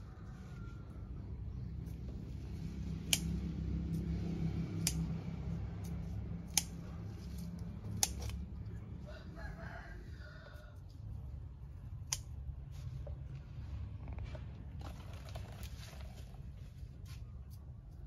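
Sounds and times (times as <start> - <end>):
rooster crowing: 0.0 - 1.4, 8.9 - 10.9
steady low hum: 0.0 - 18.0.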